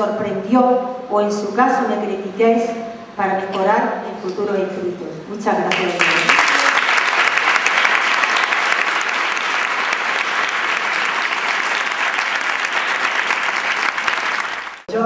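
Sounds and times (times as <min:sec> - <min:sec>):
large audience applauding: 0:05.7 - 0:14.9.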